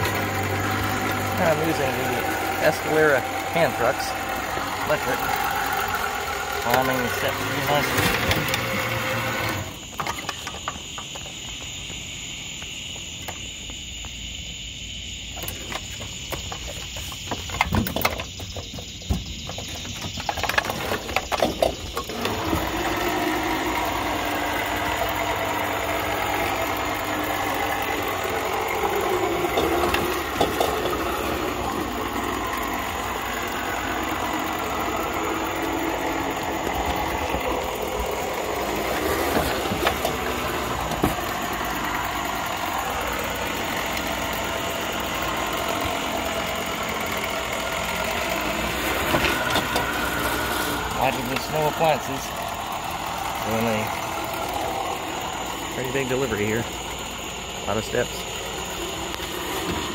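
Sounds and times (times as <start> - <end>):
electric motor and gears running: 0.0 - 14.1, 15.2 - 59.9.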